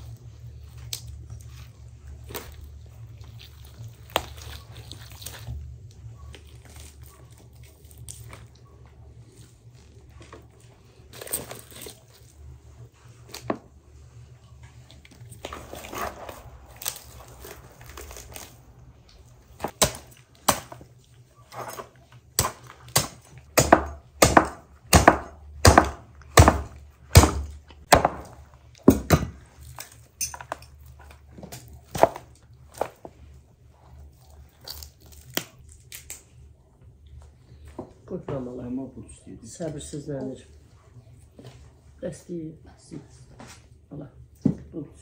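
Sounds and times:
meat tearing: 0:00.2 - 0:08.7, 0:15.0 - 0:21.2, 0:33.9 - 0:36.2
bones snapping and cracking: 0:34.5 - 0:36.3.

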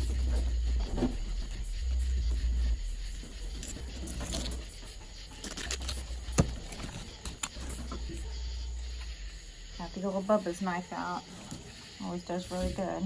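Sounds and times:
low rumble: 0:00.0 - 0:05.4
knife slicing and scraping fish: 0:03.6 - 0:08.1.

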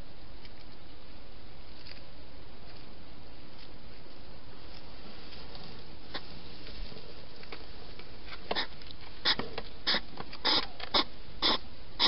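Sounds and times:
steady hiss: 0:00.0 - 0:12.0
hedgehog snuffling: 0:04.7 - 0:12.0.

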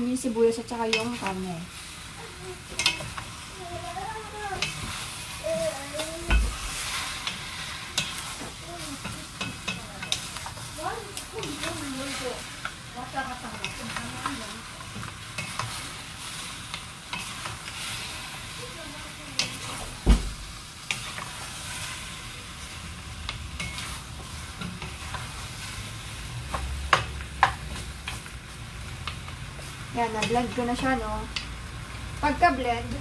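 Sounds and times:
chicken and onions sizzling in a pot: 0:00.0 - 0:33.0.

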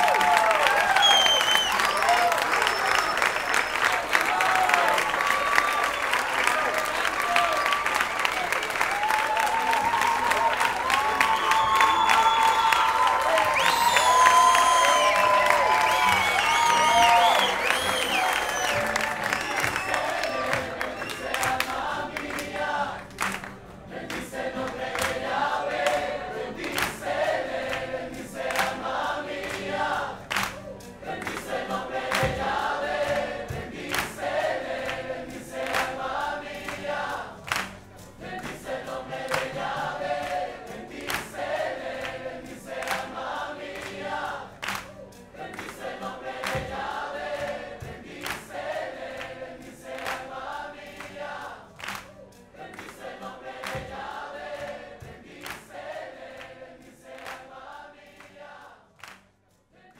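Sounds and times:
choir singing worship music: 0:09.8 - 0:59.9
acoustic band playing: 0:13.8 - 0:43.2.

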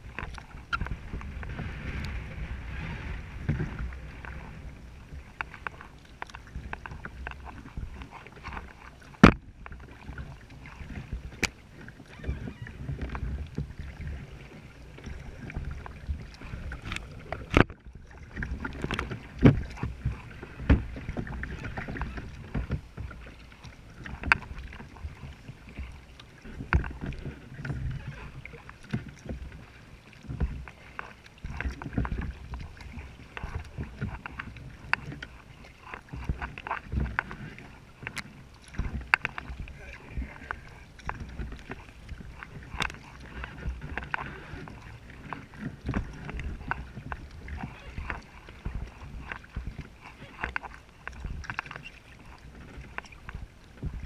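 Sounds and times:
paddle splashing water: 0:00.0 - 0:54.0
knocks against kayak hull: 0:09.2 - 0:09.5, 0:17.4 - 0:23.2.

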